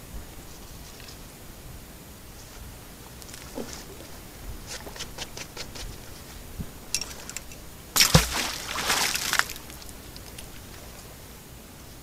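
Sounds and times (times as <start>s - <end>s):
water sloshing and dripping: 7.0s - 10.8s
magnet splashing into water: 8.0s - 9.8s.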